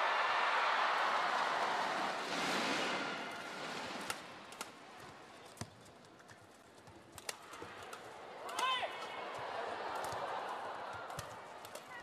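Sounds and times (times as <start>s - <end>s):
arena crowd noise: 0.0s - 12.0s
racket striking shuttlecock: 7.1s - 9.2s.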